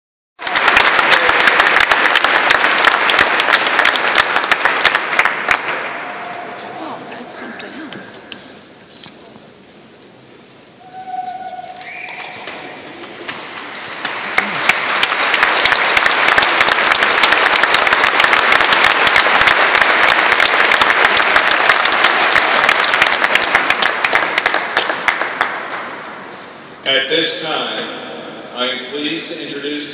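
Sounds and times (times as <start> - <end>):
large audience applauding: 0.4 - 6.7, 12.0 - 26.3.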